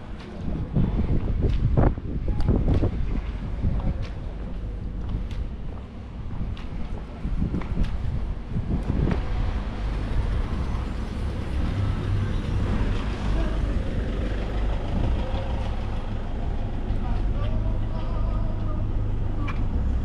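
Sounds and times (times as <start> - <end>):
heavy vehicle engine running: 5.9 - 20.0.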